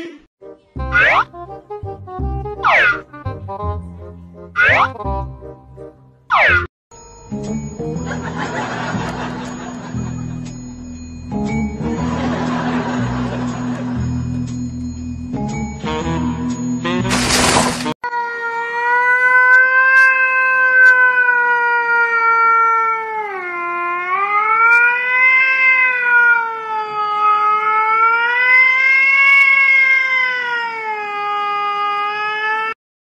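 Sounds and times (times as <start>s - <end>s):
cat yowling: 25.1s - 26.5s, 28.5s - 31.3s.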